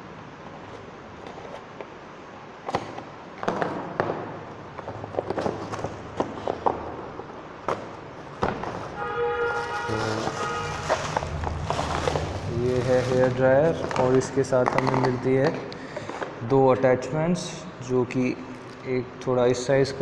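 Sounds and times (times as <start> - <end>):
cardboard box rustling and scraping: 8.6 - 14.0.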